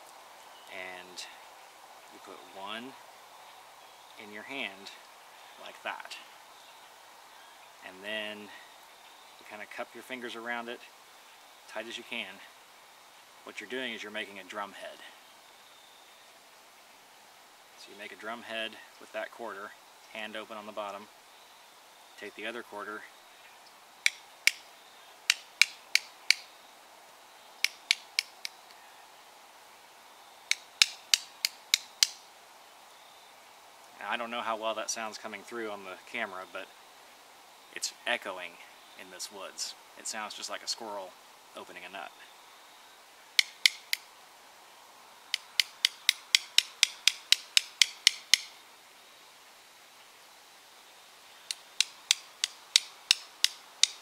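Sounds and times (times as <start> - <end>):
coin tapping metallic clicks: 45.4 - 48.5.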